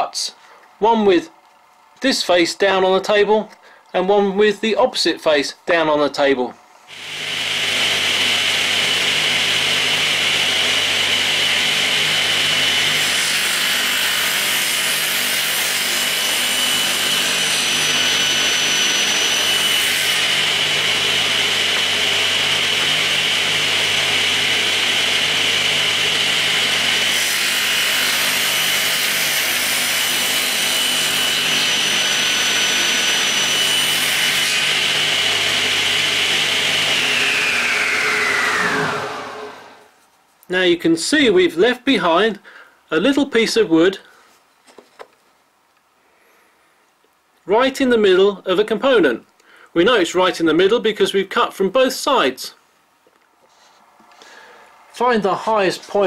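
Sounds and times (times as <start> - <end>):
table saw whining: 6.9 - 40.0.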